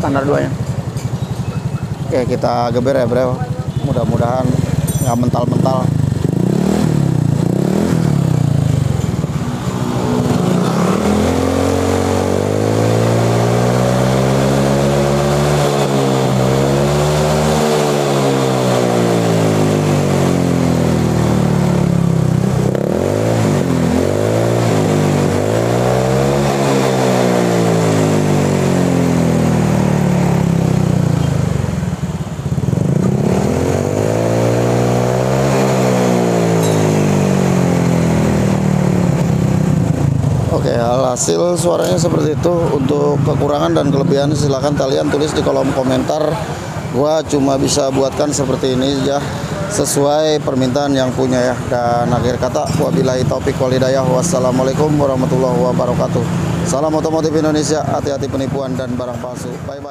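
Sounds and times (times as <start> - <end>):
scooter engine revving: 0.0 - 59.9.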